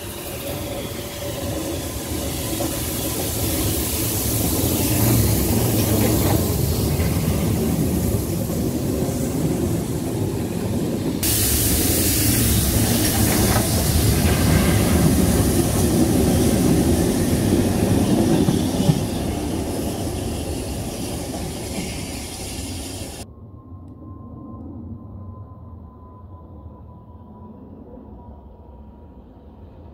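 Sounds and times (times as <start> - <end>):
steam train rumbling past: 0.0 - 23.2.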